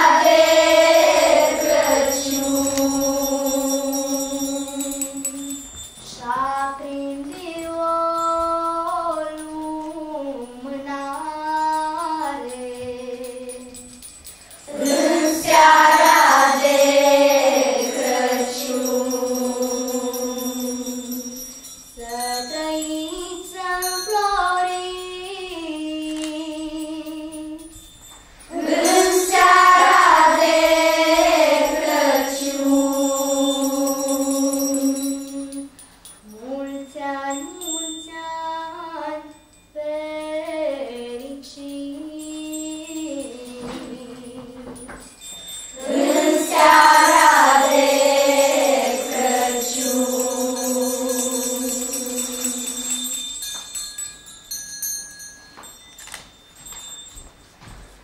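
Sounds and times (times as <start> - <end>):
children's choir singing: 0.0 - 13.8, 14.7 - 27.2, 28.5 - 35.7, 43.1 - 44.8, 45.8 - 53.2.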